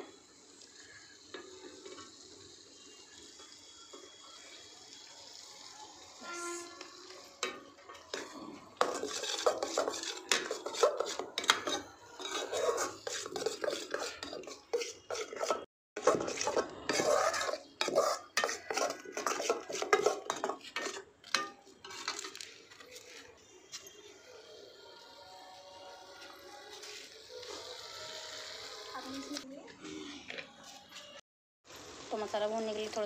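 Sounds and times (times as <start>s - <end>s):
metal ladle scraping a metal pan: 6.2s - 22.9s.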